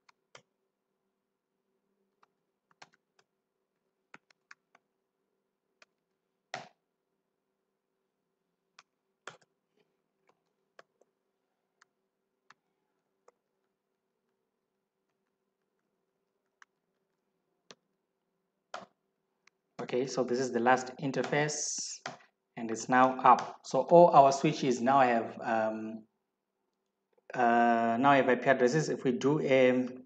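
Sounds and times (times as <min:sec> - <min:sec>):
keystrokes on computer keyboard: 0:02.2 - 0:03.3, 0:04.1 - 0:04.8, 0:08.8 - 0:09.5.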